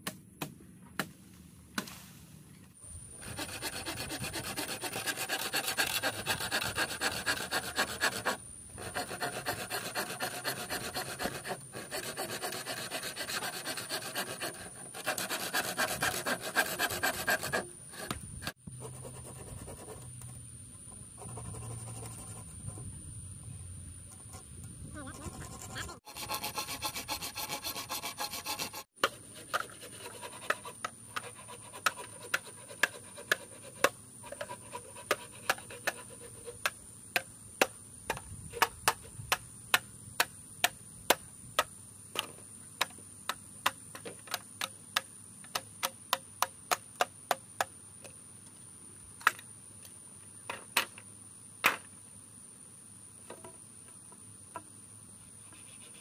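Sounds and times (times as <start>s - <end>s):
hand tool scraping: 3.1s - 18.6s, 24.1s - 36.8s.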